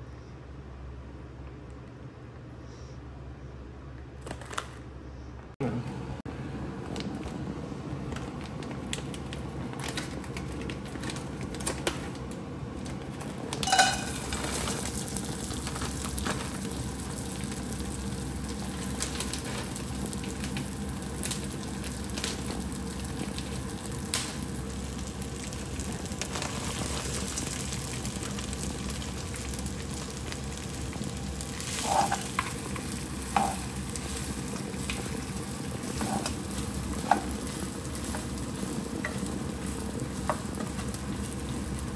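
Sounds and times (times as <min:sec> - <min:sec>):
rice sizzling in a wok: 0:13.2 - 0:41.9
rice rattling into pan: 0:13.6 - 0:17.1
spatula scraping a pan: 0:31.7 - 0:32.4, 0:35.8 - 0:36.4.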